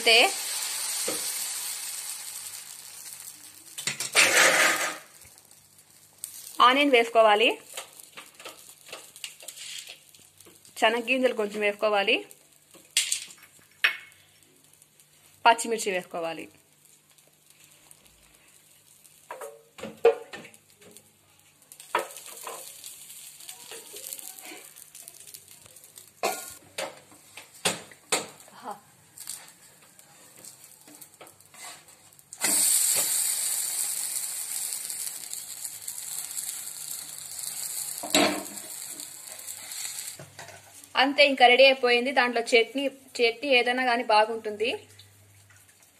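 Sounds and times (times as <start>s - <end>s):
food sizzling on pan: 0.0s - 45.9s
spatula scraping and tapping pan: 7.7s - 10.7s, 21.8s - 25.3s, 30.4s - 33.1s.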